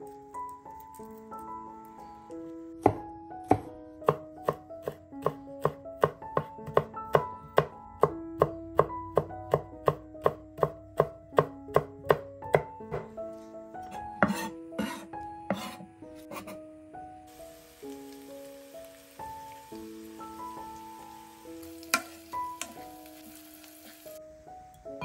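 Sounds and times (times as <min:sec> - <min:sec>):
background music: 0:00.0 - 0:25.0
knife chopping on wooden board: 0:02.8 - 0:07.7, 0:13.9 - 0:16.6.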